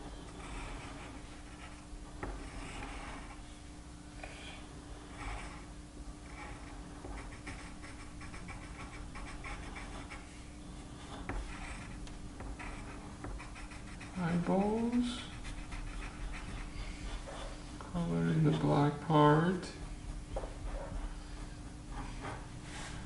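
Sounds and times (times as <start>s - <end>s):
faint hum: 0.0s - 23.0s
pencil scratching on paper: 0.3s - 3.4s, 5.1s - 10.3s, 10.9s - 17.6s.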